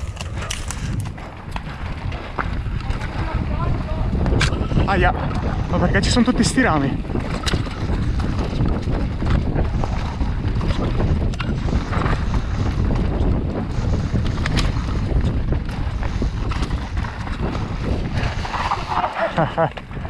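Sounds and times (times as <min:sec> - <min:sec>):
bike clicks and rattles: 0:00.0 - 0:20.0
tyres rumbling over dirt trail: 0:00.0 - 0:20.0
wind buffeting microphone: 0:00.0 - 0:20.0.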